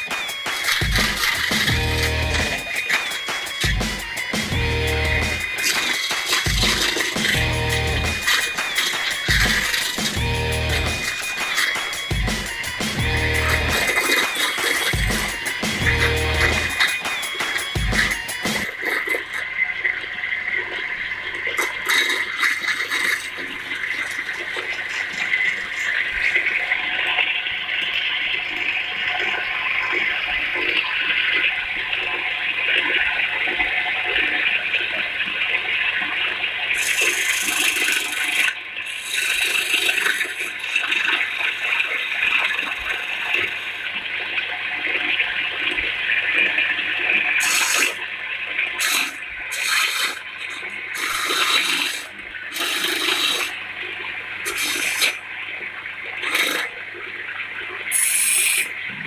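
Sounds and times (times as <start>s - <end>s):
lathe tool cutting wood: 0.8s - 18.7s, 36.8s - 43.8s, 48.8s - 50.2s
electric motor hum: 0.9s - 2.7s, 3.6s - 5.6s, 6.4s - 16.8s.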